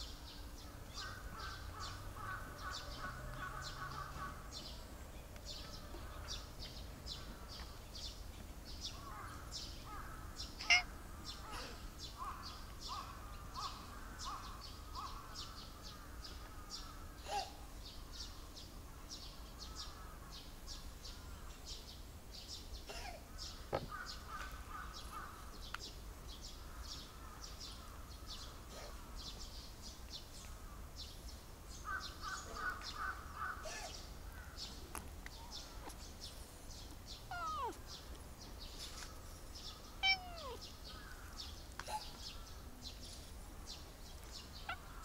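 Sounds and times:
lower repeated bird calls: 0.0s - 45.0s
cat meowing: 10.6s - 10.9s, 37.3s - 37.8s, 40.0s - 40.6s.

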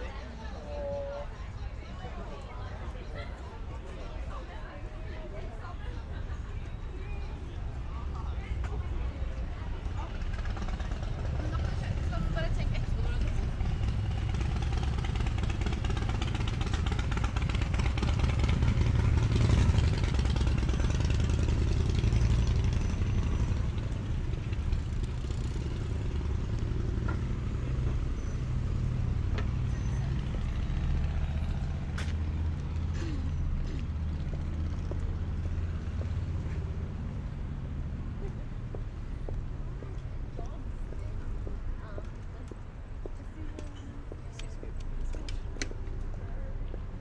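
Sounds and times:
low engine rumble: 0.0s - 47.0s.

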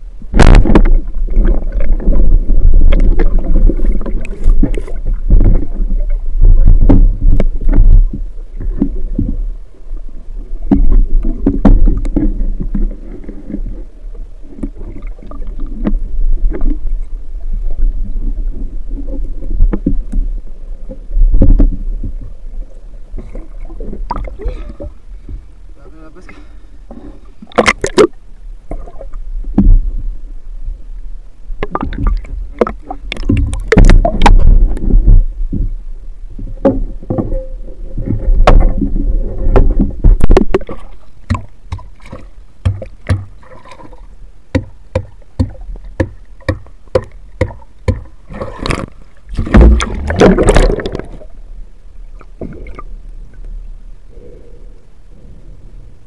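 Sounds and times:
water sloshing and splashing: 0.3s - 25.6s, 26.9s - 29.9s, 31.6s - 53.5s
low rumble: 28.1s - 56.0s
sharp clicks and knocks: 44.5s - 51.0s.

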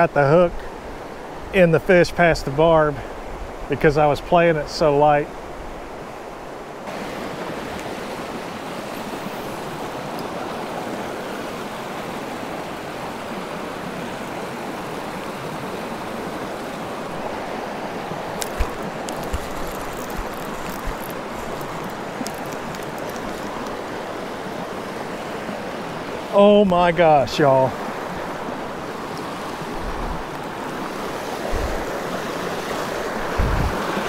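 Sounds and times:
stream water rushing over rocks: 0.0s - 34.0s.

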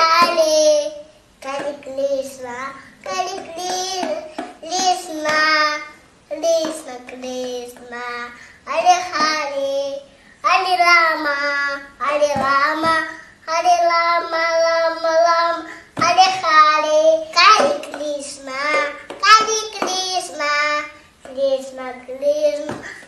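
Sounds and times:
child singing a chant: 0.0s - 23.0s.

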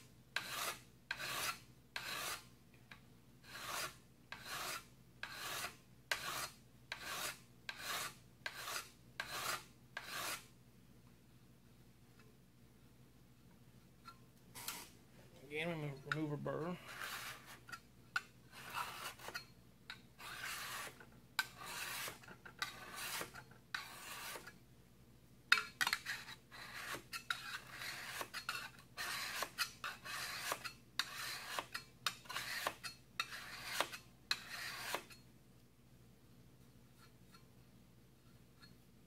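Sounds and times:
hone rasping on steel scraper: 0.4s - 2.5s, 3.4s - 10.5s, 15.8s - 24.6s, 25.5s - 35.2s.

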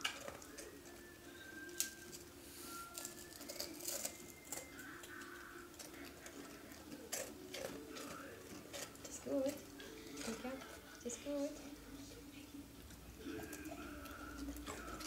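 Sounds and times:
rusk crackling as broken: 3.0s - 10.4s.

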